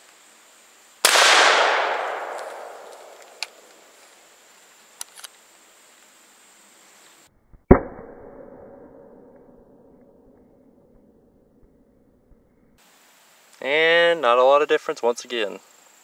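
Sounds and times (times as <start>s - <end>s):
gun blast: 1.0s - 3.9s
sharp bang: 1.1s - 3.9s
faint clicks: 2.3s - 4.1s.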